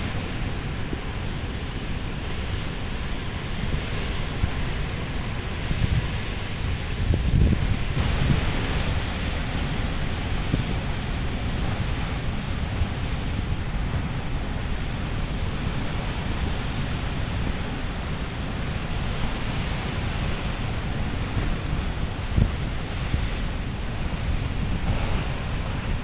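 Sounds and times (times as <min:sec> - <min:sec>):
surf breaking against rocks: 0:00.0 - 0:26.0.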